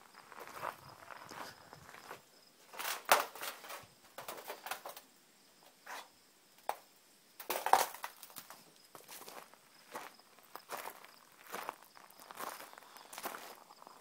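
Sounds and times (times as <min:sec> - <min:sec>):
footsteps crunching on gravel: 0:00.0 - 0:03.8, 0:07.5 - 0:14.0.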